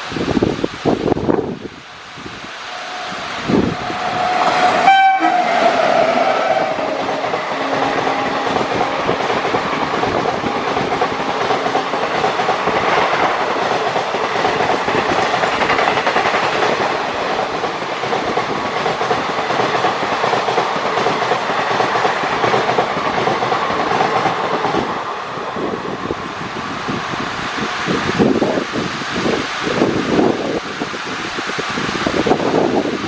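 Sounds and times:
heavy rain: 0.0s - 33.0s
train wheels clattering over rail joints: 5.6s - 25.0s.

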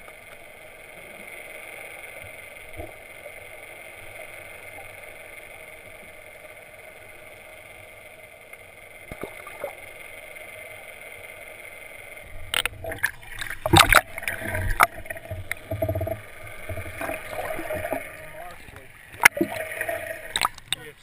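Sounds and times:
underwater hum and hiss: 0.0s - 21.0s
water splashing and sloshing: 12.2s - 21.0s.

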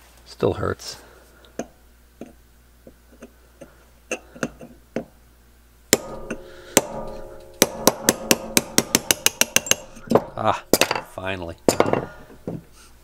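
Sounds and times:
hammer striking metal punch: 5.9s - 12.2s.

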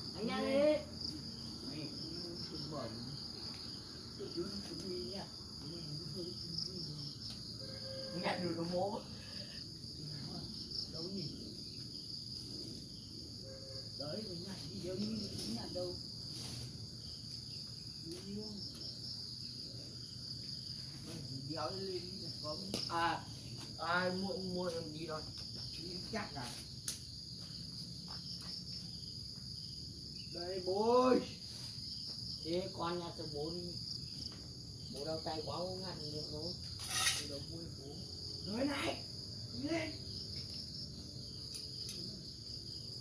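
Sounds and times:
high insect trill: 0.0s - 43.0s
people talking: 0.1s - 0.9s, 4.2s - 7.2s, 8.1s - 9.1s, 14.0s - 16.0s, 18.1s - 18.6s, 21.0s - 23.2s, 23.8s - 26.6s, 30.4s - 31.4s, 32.5s - 33.8s, 34.9s - 36.5s, 37.2s - 39.0s.

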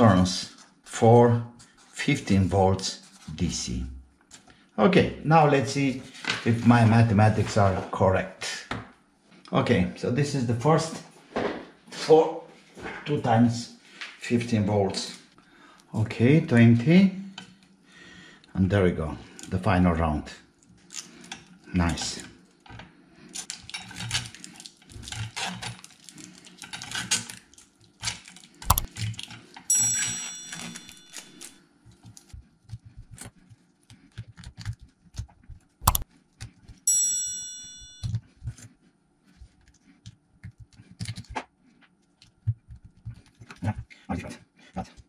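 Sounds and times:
metallic ring of lamination: 29.6s - 31.6s, 36.7s - 38.2s
steel laminations clinking: 29.7s - 31.5s, 36.9s - 38.1s.

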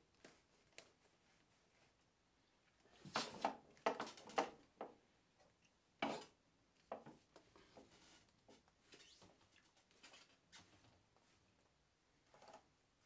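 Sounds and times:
cable rubbing and rustling: 6.9s - 11.6s.

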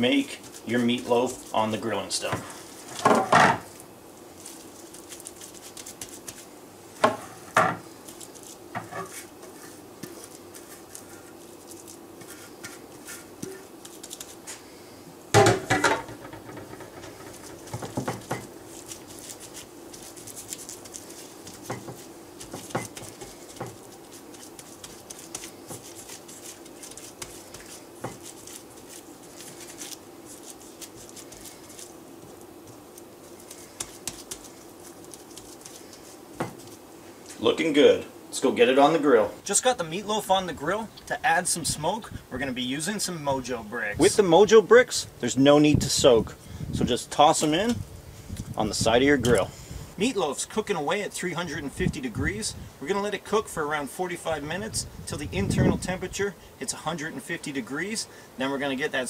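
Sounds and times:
faint steady hum: 0.0s - 59.0s
hands patting raw meat: 4.4s - 6.5s, 10.0s - 14.6s, 16.7s - 36.8s.

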